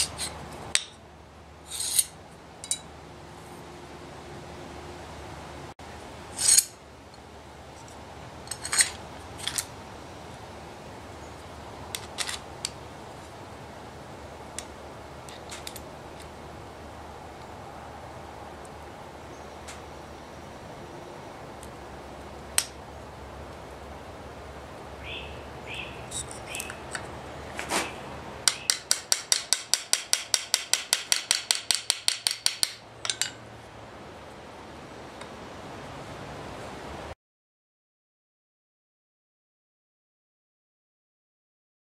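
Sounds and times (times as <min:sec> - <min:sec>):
metal scraping on anvil: 0:00.0 - 0:00.9, 0:01.7 - 0:02.9, 0:06.4 - 0:06.7, 0:08.5 - 0:09.6
metal parts clinking: 0:01.7 - 0:02.8, 0:08.5 - 0:09.7, 0:11.9 - 0:12.5
small hammer tapping metal: 0:28.4 - 0:33.4.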